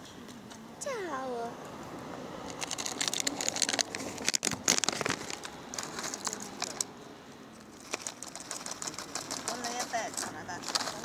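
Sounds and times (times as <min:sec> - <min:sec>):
plastic wrapper crinkling: 0:02.5 - 0:06.9, 0:07.7 - 0:11.0.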